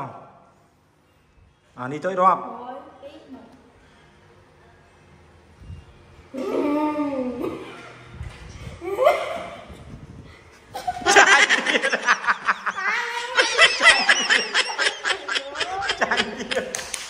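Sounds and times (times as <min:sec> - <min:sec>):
woman laughing heartily: 0:10.4 - 0:16.9.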